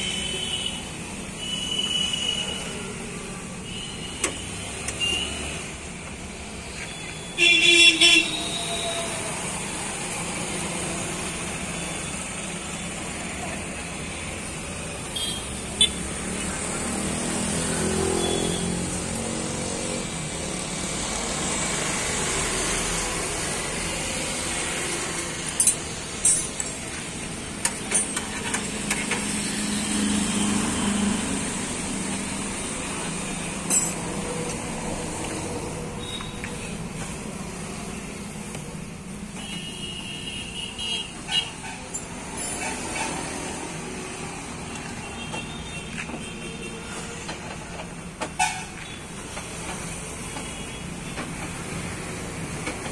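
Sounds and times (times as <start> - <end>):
street traffic noise: 0.0 - 52.9.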